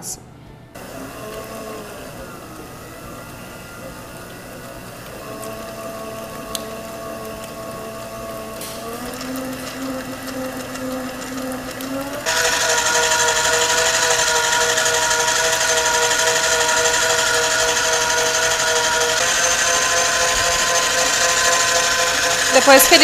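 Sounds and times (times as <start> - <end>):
stand mixer motor whining: 0.8 - 23.0.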